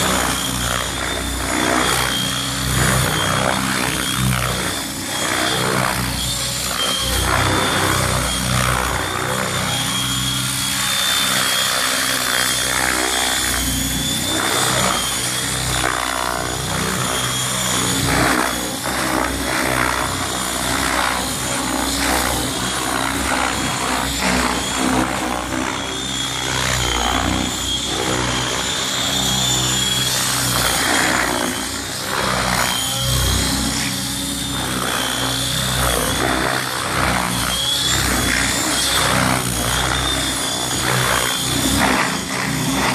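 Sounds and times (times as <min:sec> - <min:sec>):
radio-controlled helicopter rotors whining: 0:00.0 - 0:42.9.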